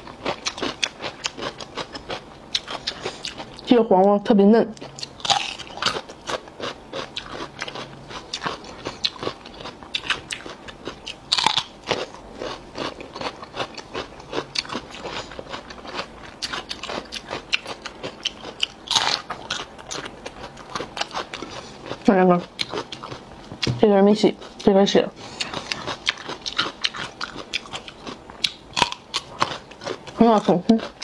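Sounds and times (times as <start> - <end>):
crunchy chewing: 0.0 - 3.7, 4.7 - 31.0
cucumber crunching bites: 4.9 - 21.4.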